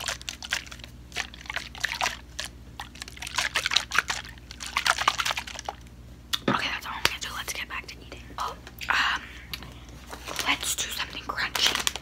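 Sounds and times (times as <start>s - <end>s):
liquid sloshing in plastic bottle: 0.0s - 5.9s.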